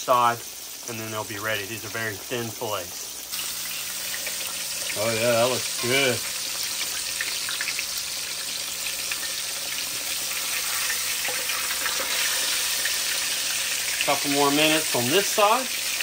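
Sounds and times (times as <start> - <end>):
fish sizzling in oil: 0.0 - 16.0.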